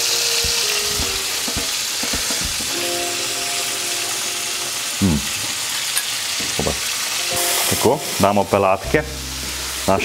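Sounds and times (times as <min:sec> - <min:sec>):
soft background music: 0:00.0 - 0:05.0, 0:07.2 - 0:10.0
bacon sizzling in a frying pan: 0:00.0 - 0:10.0.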